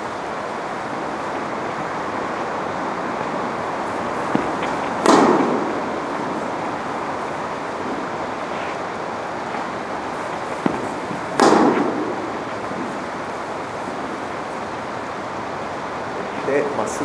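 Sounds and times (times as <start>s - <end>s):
steady rushing noise: 0.0s - 17.0s
tennis racket hitting ball: 1.6s - 8.8s, 9.4s - 13.1s.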